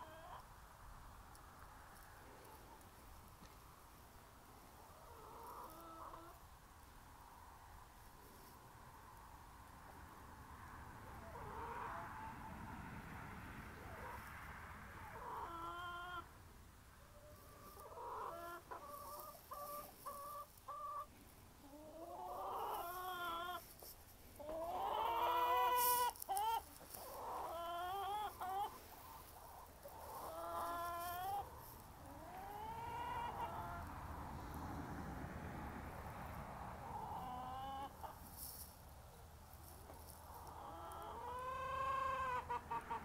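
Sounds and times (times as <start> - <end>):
hens clucking and calling: 0.0 - 0.5, 4.8 - 6.4, 11.2 - 12.6, 15.0 - 16.4, 17.0 - 34.1, 36.8 - 38.8, 39.6 - 43.0.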